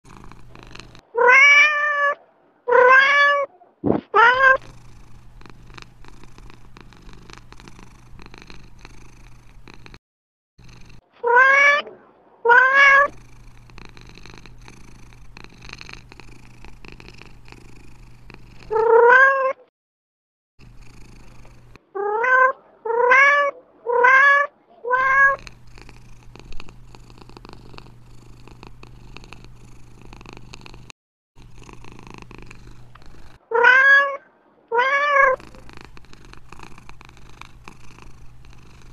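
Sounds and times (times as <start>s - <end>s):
cat meowing: 1.1s - 4.7s, 11.2s - 13.2s, 18.7s - 19.7s, 21.9s - 25.5s, 33.5s - 35.7s.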